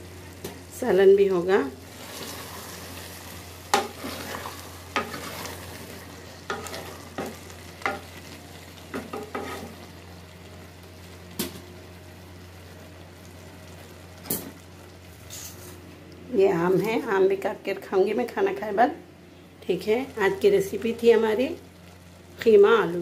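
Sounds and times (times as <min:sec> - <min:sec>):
curry sizzling: 0:00.0 - 0:18.7, 0:19.6 - 0:23.0
spoon scraping and knocking pot: 0:09.0 - 0:09.7.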